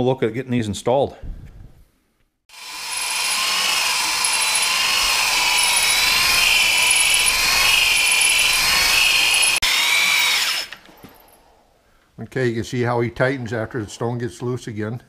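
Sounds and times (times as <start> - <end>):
electric drill whine: 2.5 - 11.4
hone stones rasping on metal: 2.8 - 9.6.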